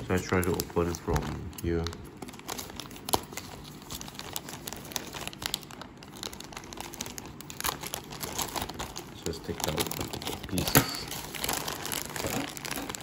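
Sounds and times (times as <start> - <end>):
plastic film crinkling: 0.0 - 13.0
scissors cutting plastic: 8.4 - 13.0.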